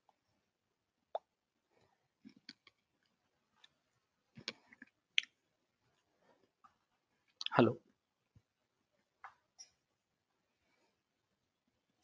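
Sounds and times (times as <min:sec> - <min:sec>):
faint clicks and pops: 0:02.2 - 0:05.4.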